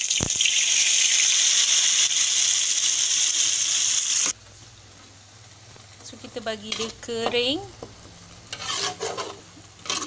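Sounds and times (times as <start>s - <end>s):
paste sizzling in hot oil: 0.0s - 4.4s.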